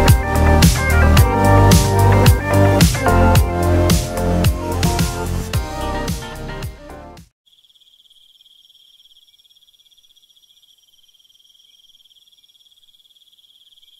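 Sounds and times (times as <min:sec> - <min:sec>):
background music: 0:00.0 - 0:07.3.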